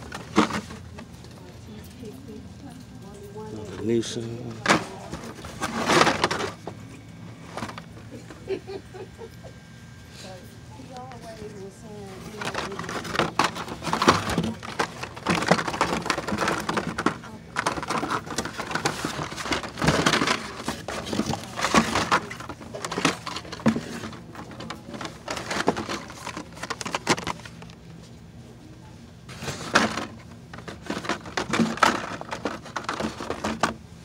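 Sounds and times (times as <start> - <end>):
plastic blister packs crackling: 12.1 - 27.8.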